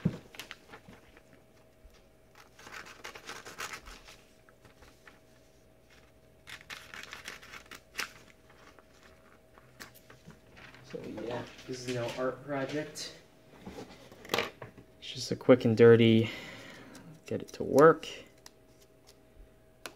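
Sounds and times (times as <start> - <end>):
scissors snipping paper: 2.3 - 4.0.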